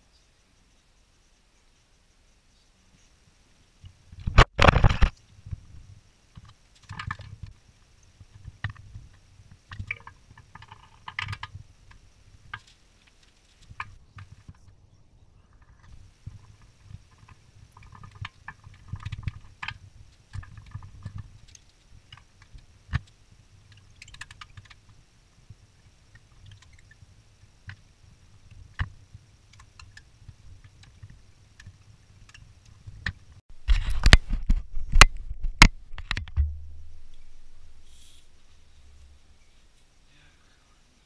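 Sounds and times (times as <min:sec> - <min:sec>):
knocks and rubbing on camera: 0:04.2 - 0:05.6.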